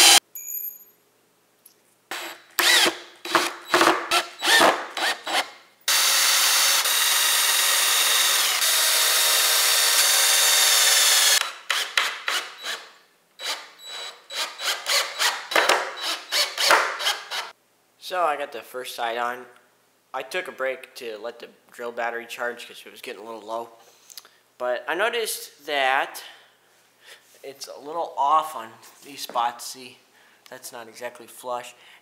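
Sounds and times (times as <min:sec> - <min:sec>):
cordless drill boring into wood: 0:00.0 - 0:00.2, 0:02.1 - 0:17.5.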